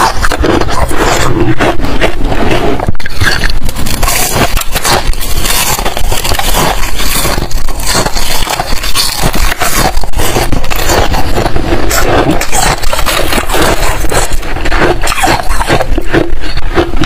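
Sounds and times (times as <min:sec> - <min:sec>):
ice crunching being chewed: 0:00.0 - 0:17.0.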